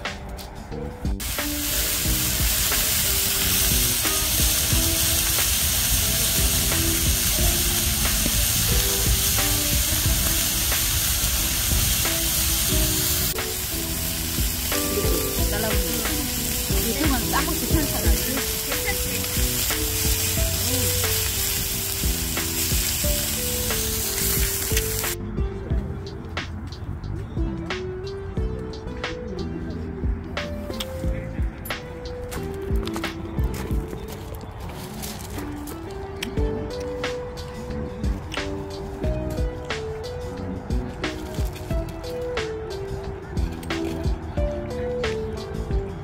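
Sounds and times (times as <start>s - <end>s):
background music: 0.0s - 46.0s
beef sizzling on a griddle: 1.2s - 25.2s.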